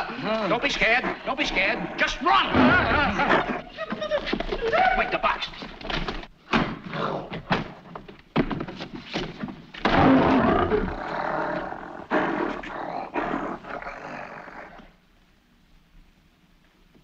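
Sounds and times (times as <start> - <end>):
gorilla roaring and growling: 0.0 - 3.7, 6.9 - 7.5, 9.8 - 15.0.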